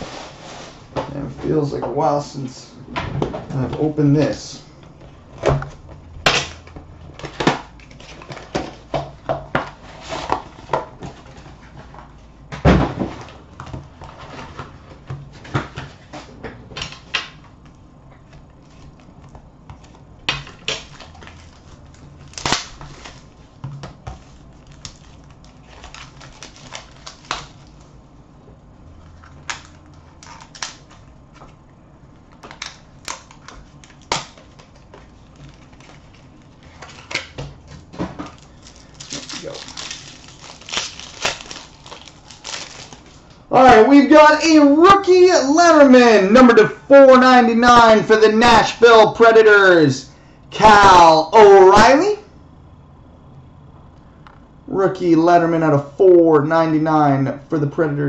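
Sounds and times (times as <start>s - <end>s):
card packs being cut open: 20.5s - 23.4s, 24.2s - 27.9s, 29.0s - 31.1s, 32.4s - 43.3s.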